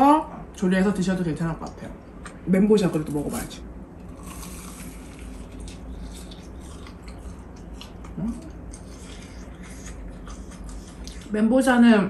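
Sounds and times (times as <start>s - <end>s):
crunchy bites and chewing: 4.0s - 11.3s.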